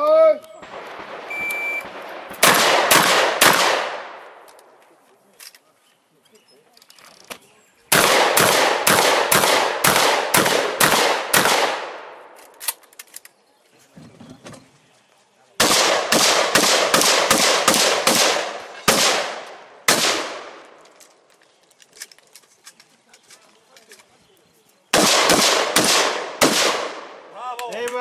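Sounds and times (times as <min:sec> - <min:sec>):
shotgun shots: 0:00.6 - 0:04.4, 0:07.9 - 0:12.4, 0:15.6 - 0:20.8, 0:24.9 - 0:27.3.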